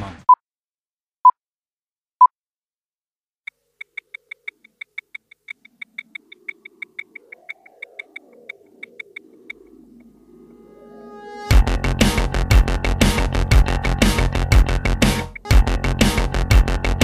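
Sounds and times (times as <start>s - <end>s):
sharp high ticks: 3.5s - 10.1s
low wavering drone: 6.2s - 13.3s.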